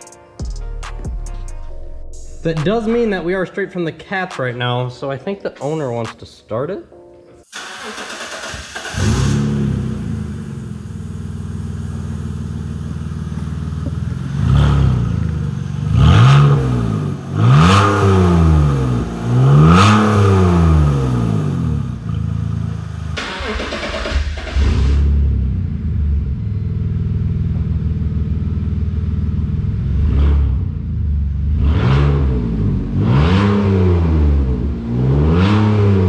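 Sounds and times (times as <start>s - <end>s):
car engine idling and revving: 7.6s - 36.0s.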